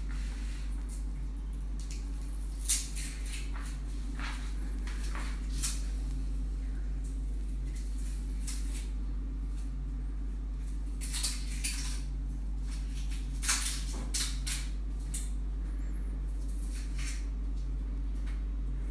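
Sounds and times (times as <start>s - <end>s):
steady low hum: 0.0s - 18.9s.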